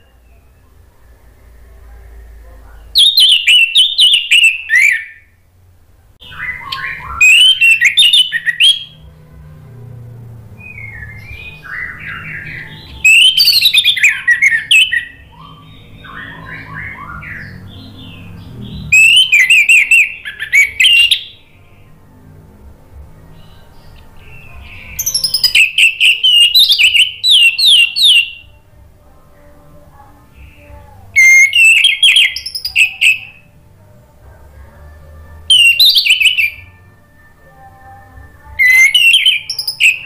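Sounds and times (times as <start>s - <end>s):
thrush singing: 0.0s - 40.0s.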